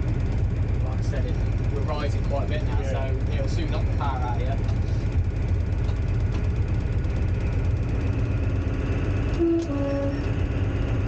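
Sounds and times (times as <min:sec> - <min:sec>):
diesel engine droning: 0:00.0 - 0:11.0
two-tone train horn: 0:09.2 - 0:10.6.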